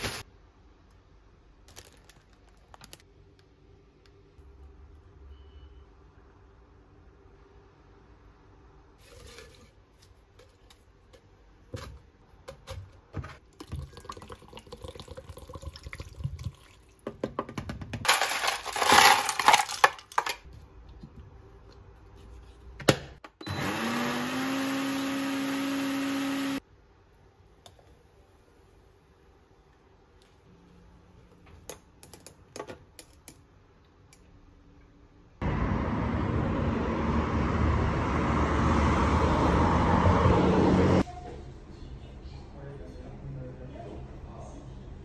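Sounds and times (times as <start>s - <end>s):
water pouring into blender jar: 13.5s - 17.0s
blender motor running: 23.4s - 26.6s.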